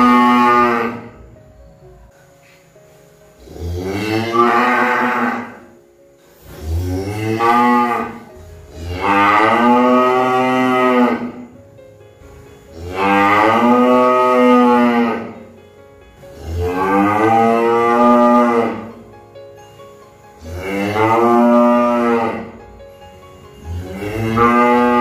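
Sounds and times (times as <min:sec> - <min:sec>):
cow mooing: 0:00.0 - 0:01.2, 0:03.4 - 0:05.8, 0:06.5 - 0:11.5, 0:12.7 - 0:15.4, 0:16.3 - 0:19.0, 0:20.4 - 0:22.6, 0:23.6 - 0:25.0.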